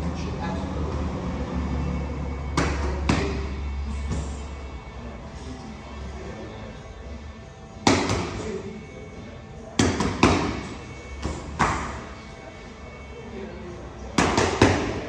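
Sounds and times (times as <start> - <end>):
background music: 0.0 - 15.0
boxing gloves smacking mitts: 7.8 - 8.4, 9.8 - 12.0, 14.2 - 15.0.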